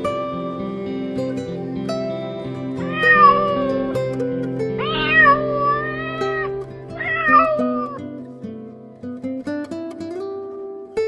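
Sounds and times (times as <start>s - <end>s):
acoustic guitar music: 0.0s - 11.0s
cat meowing: 2.8s - 4.1s, 4.8s - 8.0s.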